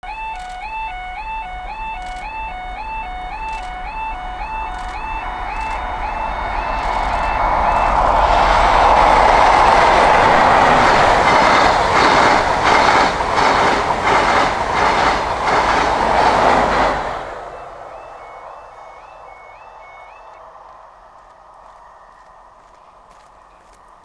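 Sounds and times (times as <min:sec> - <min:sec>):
train rushing past: 0:00.5 - 0:24.0
wheels clacking over rail joints: 0:04.9 - 0:18.2.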